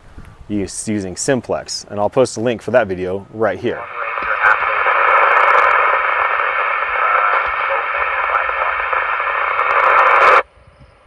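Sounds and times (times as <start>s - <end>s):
radio static hiss: 3.3s - 10.4s
faint radio speech: 3.5s - 10.4s.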